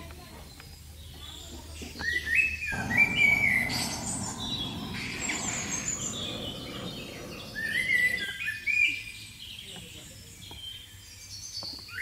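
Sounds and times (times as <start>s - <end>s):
small birds chirping and singing: 0.0s - 12.0s
steady rushing noise: 2.7s - 8.5s.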